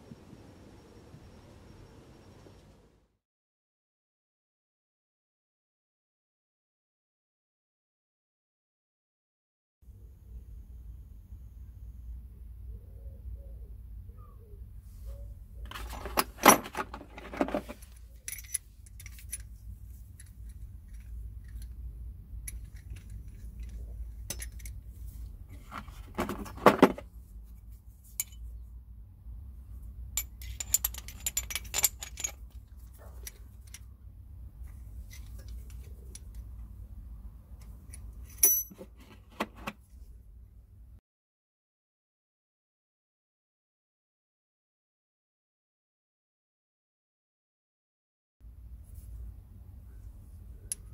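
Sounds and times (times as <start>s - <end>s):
steel tool parts clinking: 15.7s - 21.8s, 22.4s - 24.8s, 30.2s - 32.6s, 37.9s - 39.1s.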